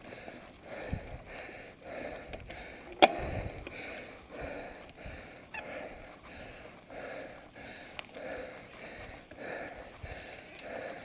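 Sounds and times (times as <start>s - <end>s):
rider breathing hard: 0.0s - 11.0s
bike rattles and clicks: 0.3s - 5.0s.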